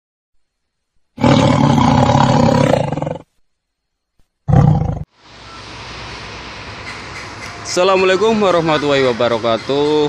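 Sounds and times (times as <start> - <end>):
rough roar: 1.2 - 3.3, 4.5 - 5.1.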